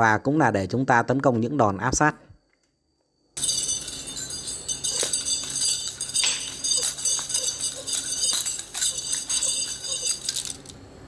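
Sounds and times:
metal nunchaku clinking and clacking: 3.4 - 10.8.

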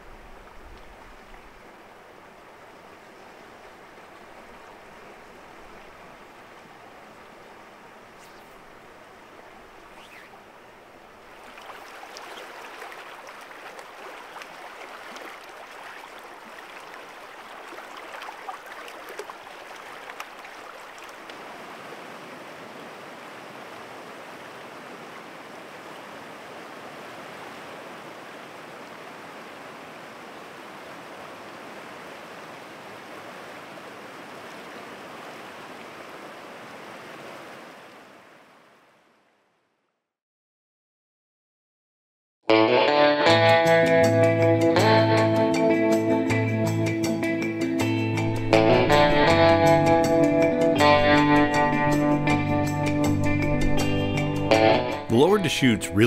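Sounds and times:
river water rushing: 0.0 - 39.3.

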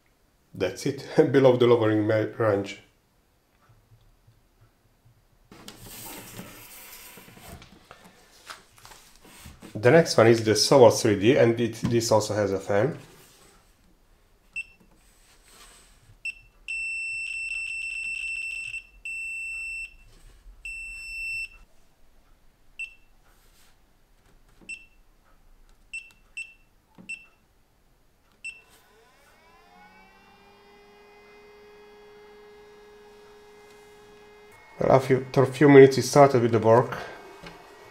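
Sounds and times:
control panel beeps: 25.9 - 27.4
fan motor whine and hum: 28.6 - 37.9.

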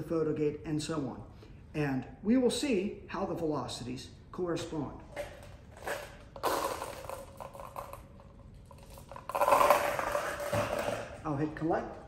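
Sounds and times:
lab apparatus scraping and rattling: 5.1 - 11.2.

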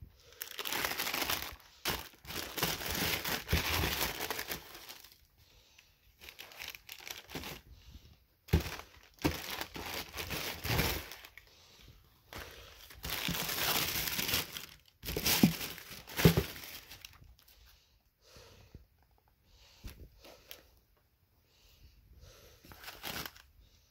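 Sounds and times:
tissue paper crinkling: 0.4 - 5.2, 6.2 - 7.6, 8.5 - 11.4, 12.3 - 17.4, 22.7 - 23.5.

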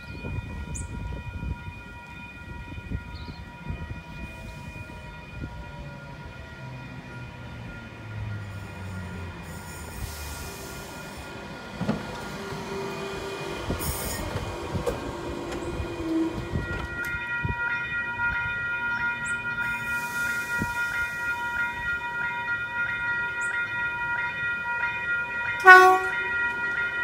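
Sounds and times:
train wheel knocks and rumble: 11.7 - 12.6, 13.7 - 17.2.

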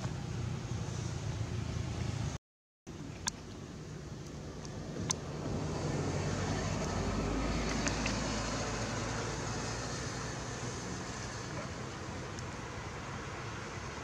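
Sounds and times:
vehicle passing by: 5.2 - 14.0.

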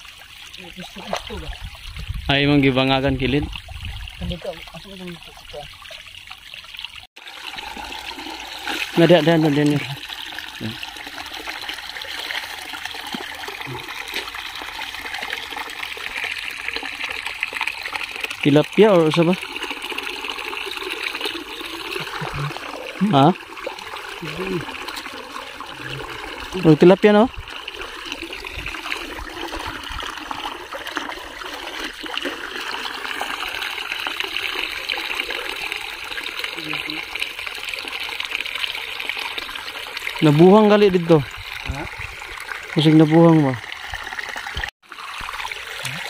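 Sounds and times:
muddy water sloshing and splashing: 0.0 - 46.0.

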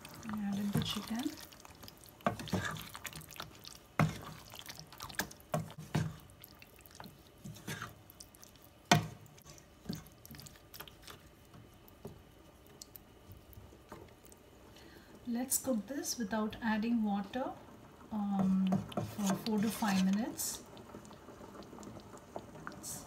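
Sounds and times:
wet squelching of curry stirring: 0.0 - 14.6, 18.6 - 22.8.

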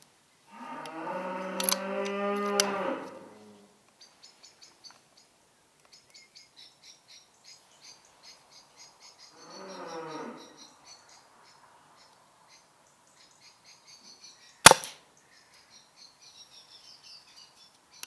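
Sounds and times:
cow mooing: 0.5 - 3.7, 9.4 - 10.6
faint high-pitched chirping: 3.4 - 18.0
sharp clicks: 14.7 - 15.0.

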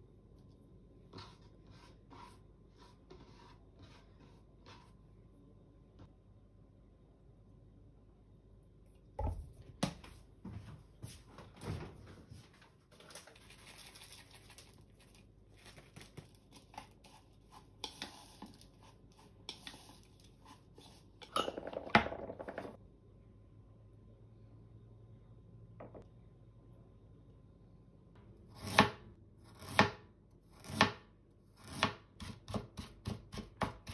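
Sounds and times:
plastic bag rustling: 12.4 - 16.7
bottle and utensils knocking on counter: 25.8 - 26.0.

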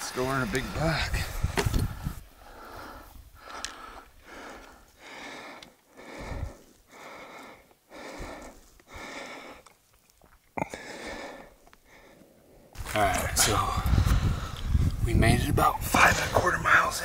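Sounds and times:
man breathing heavily: 0.9 - 9.8, 10.6 - 12.8, 13.5 - 15.0.

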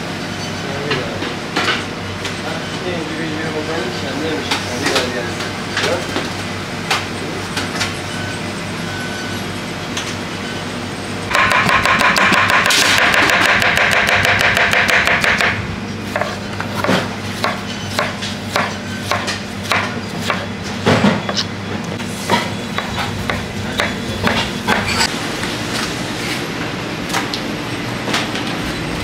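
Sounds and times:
loud machine whir: 2.0 - 16.2, 17.1 - 29.0
knife chopping on plastic board: 11.3 - 20.4.

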